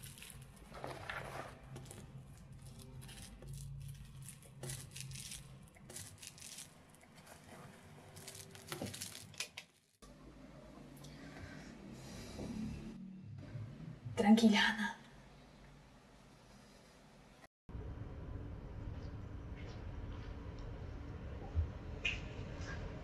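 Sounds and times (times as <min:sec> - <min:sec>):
plastic bag rustling: 0:00.0 - 0:10.0.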